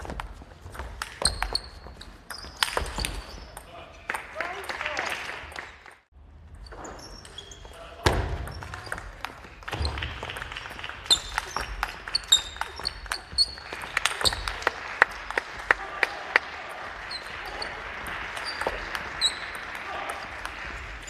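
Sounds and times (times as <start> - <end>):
shoes squeaking on wooden floor: 0.0 - 3.6, 6.5 - 9.0, 11.1 - 14.5.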